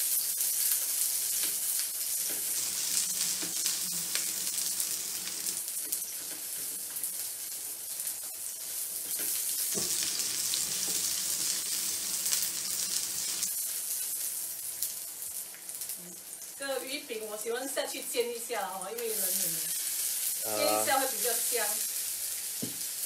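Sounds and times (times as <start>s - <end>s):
onion sizzling in hot oil: 0.0s - 23.0s.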